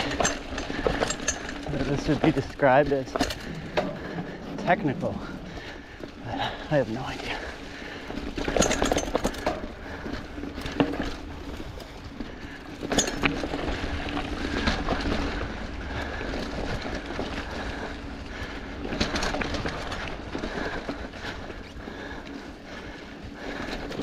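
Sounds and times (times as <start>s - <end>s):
tyres on dirt and leaves: 0.0s - 24.0s
low rumble: 3.0s - 8.3s.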